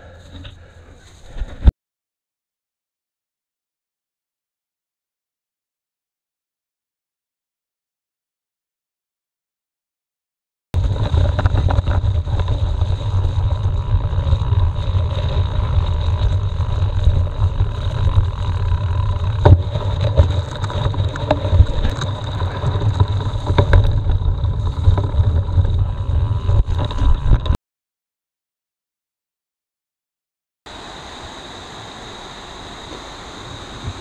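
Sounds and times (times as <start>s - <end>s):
bike knocking and rattling: 10.8s - 27.6s
tyre rumble: 10.8s - 27.6s
wind on microphone: 10.8s - 27.6s.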